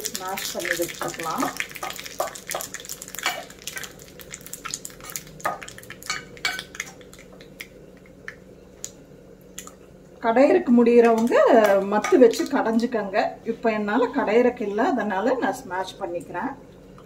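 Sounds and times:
seeds sizzling in oil: 0.0s - 7.6s.

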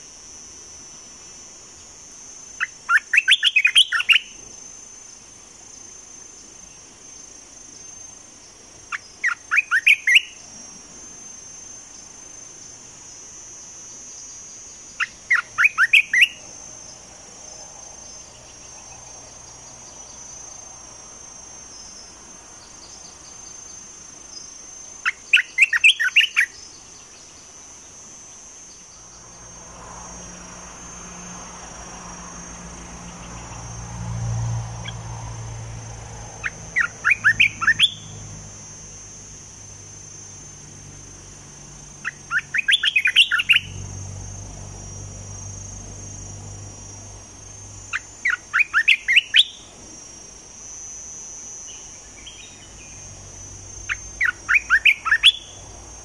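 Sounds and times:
high insect drone: 0.0s - 56.0s
bulbul chattering calls: 36.4s - 38.1s, 42.0s - 43.7s, 53.9s - 55.6s.

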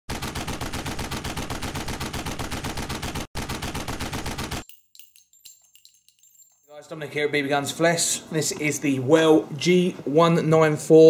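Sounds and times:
rapid machine-gun fire: 0.1s - 4.6s.

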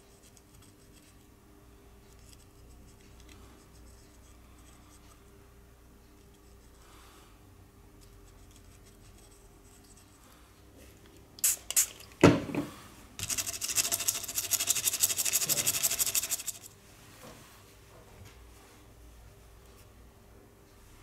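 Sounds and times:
tool scratching hard surface: 13.2s - 16.7s.

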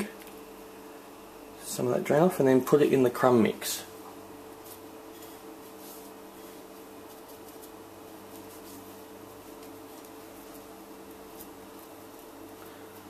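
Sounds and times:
low background hum: 0.0s - 13.0s
crumbs rustling and scratching: 4.5s - 13.0s.

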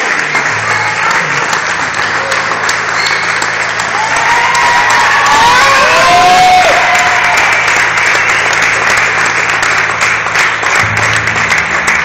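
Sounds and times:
audience applauding: 0.0s - 12.0s
whistle: 3.0s - 3.4s.

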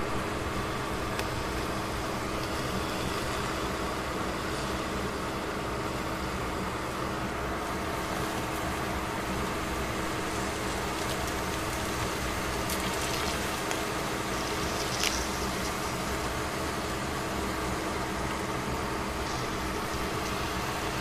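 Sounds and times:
pot heating on stove: 0.0s - 21.0s
small ticks: 10.4s - 16.5s.

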